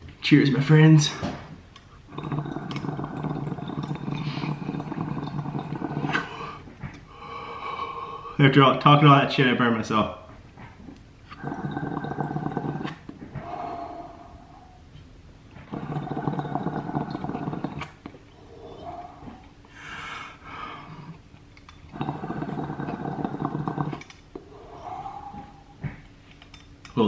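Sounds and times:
water bubbling in glass pipe: 0:02.1 - 0:06.6, 0:11.3 - 0:13.6, 0:15.6 - 0:19.5, 0:21.9 - 0:25.7.

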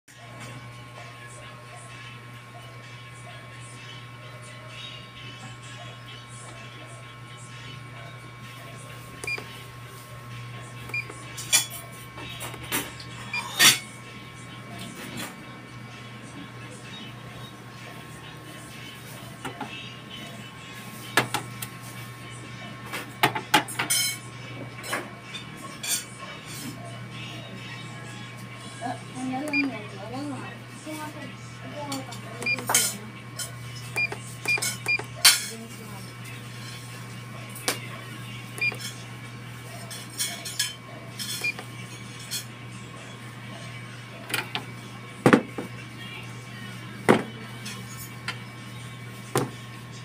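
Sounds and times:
electronic key beep: 0:34.0 - 0:35.0.

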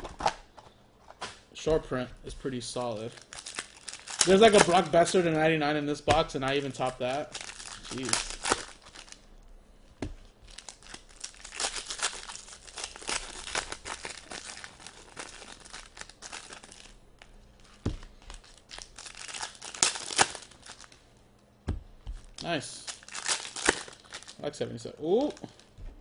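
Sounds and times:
foil wrapper tearing and crinkling: 0:02.8 - 0:05.2, 0:06.4 - 0:09.2, 0:10.4 - 0:16.9, 0:18.1 - 0:21.0, 0:22.2 - 0:24.4
soft thumps: 0:21.6 - 0:22.3.

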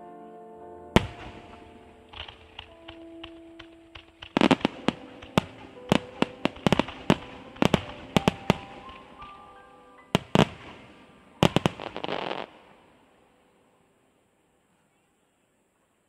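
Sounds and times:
firework shells bursting: 0:01.0 - 0:12.8.

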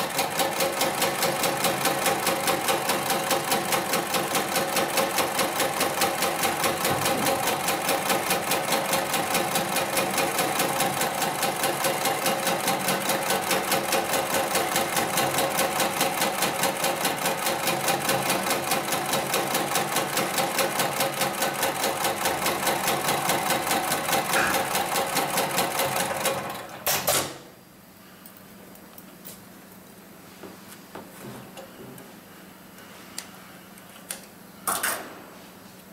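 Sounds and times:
sewing machine stitching: 0:00.0 - 0:27.3.

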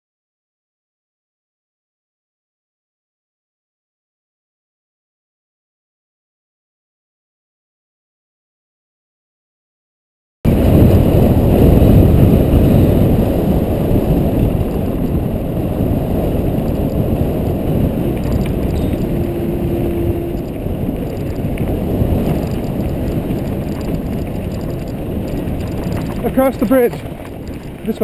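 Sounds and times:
tyres rumbling on gravel: 0:10.5 - 0:28.0
wind buffeting microphone: 0:10.5 - 0:28.0.

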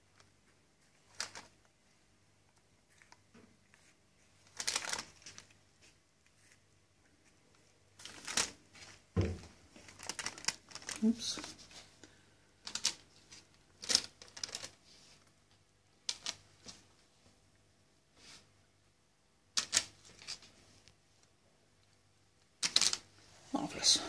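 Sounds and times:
piping bag rustling: 0:09.7 - 0:11.8.

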